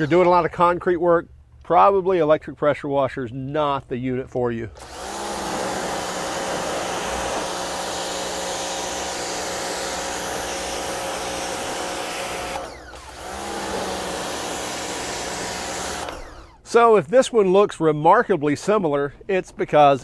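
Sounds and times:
pressure washer motor: 0:04.8 - 0:16.8
water jet hissing on concrete: 0:05.0 - 0:12.6.

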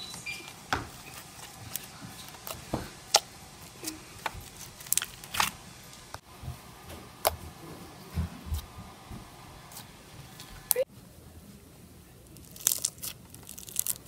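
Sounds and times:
slime squishing: 0:00.1 - 0:06.2, 0:12.3 - 0:14.0
slime clicking and popping: 0:12.4 - 0:14.0.

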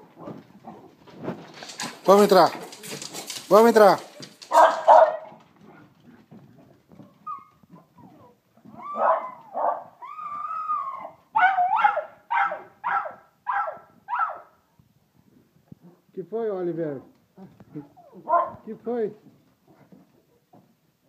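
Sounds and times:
scuffling clicks: 0:00.3 - 0:07.7
dog yipping: 0:04.5 - 0:05.3, 0:07.2 - 0:14.5, 0:17.8 - 0:18.6
dog whining: 0:07.0 - 0:12.0, 0:17.7 - 0:18.6.

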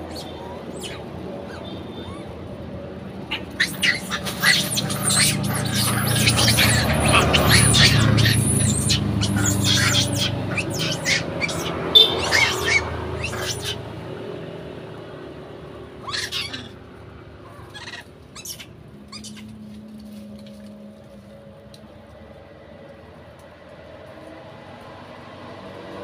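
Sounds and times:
animal chirps and squeaks: 0:00.0 - 0:02.5, 0:03.2 - 0:13.8, 0:16.0 - 0:16.8, 0:17.4 - 0:19.6.

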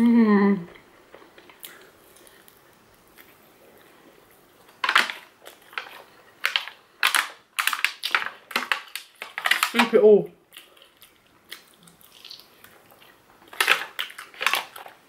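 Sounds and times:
aluminium foil crinkling: 0:04.6 - 0:15.0.

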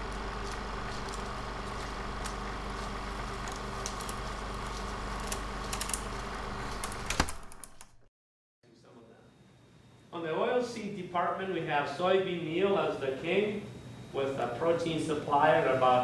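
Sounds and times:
electrical hum with hiss: 0:00.0 - 0:08.0, 0:08.6 - 0:16.0
crackling clicks: 0:00.0 - 0:08.1.

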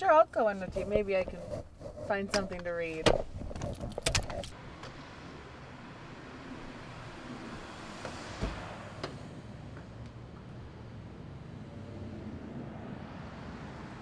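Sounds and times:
street traffic noise: 0:00.0 - 0:14.0
vehicle passing: 0:04.5 - 0:14.0.

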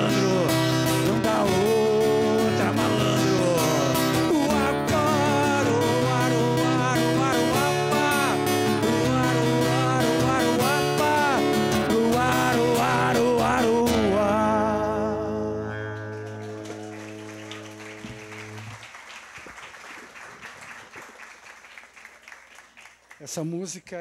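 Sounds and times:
man singing: 0:00.0 - 0:16.3
strummed acoustic guitar: 0:00.0 - 0:18.7
audience clapping: 0:15.8 - 0:24.0.

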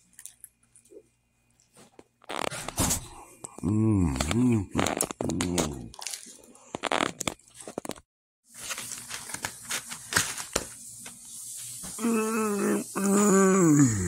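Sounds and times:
hummed voice-like tone: 0:03.6 - 0:05.9, 0:12.0 - 0:14.0.

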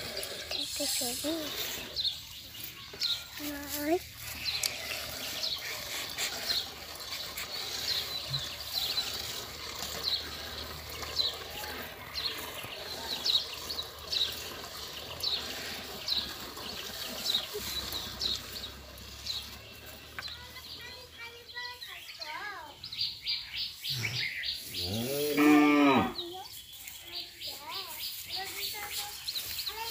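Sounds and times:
milk squirting into metal pail: 0:03.4 - 0:20.5.

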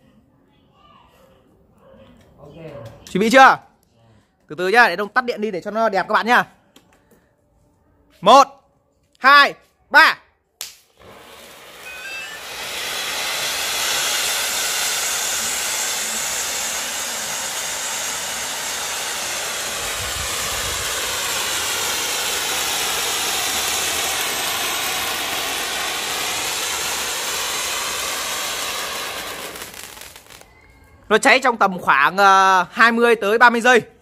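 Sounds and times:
spark fountain hissing: 0:10.6 - 0:31.3.

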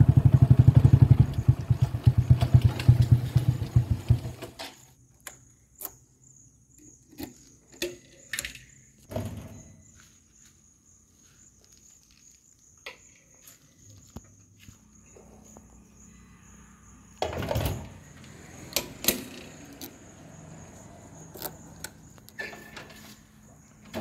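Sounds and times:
motorcycle engine idling: 0:00.0 - 0:04.4.

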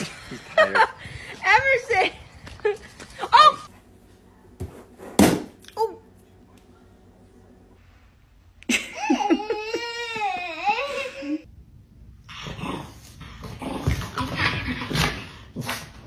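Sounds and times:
toddler laughing loudly: 0:08.9 - 0:11.4.

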